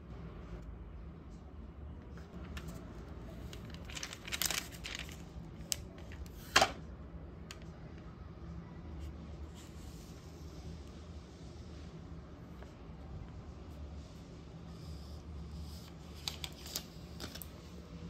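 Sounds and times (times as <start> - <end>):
plastic film crinkling: 2.4 - 6.6.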